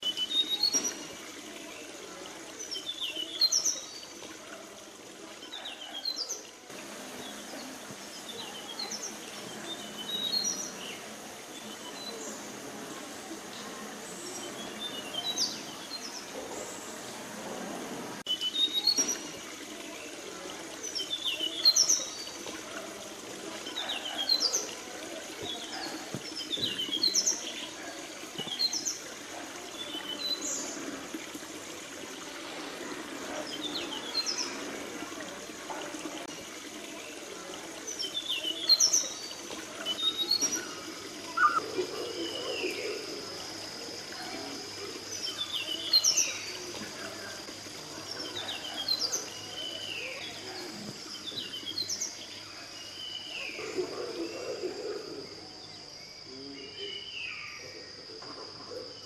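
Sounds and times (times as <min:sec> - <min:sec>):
thin steady high tone: 0:39.8 - 0:47.2
birds chirping and whistling: 0:41.3 - 0:41.7.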